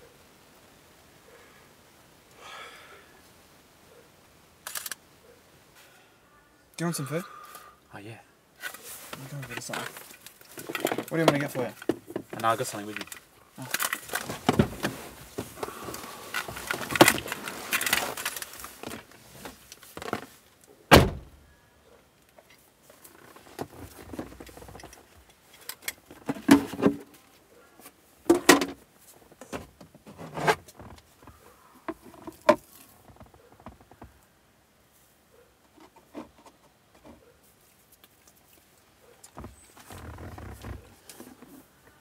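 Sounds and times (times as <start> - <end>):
objects rustling: 8.6 - 20.4, 22.4 - 34.2.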